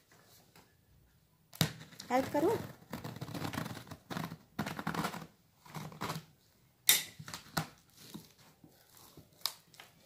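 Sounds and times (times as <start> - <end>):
cardboard flap tearing: 2.5 - 6.3.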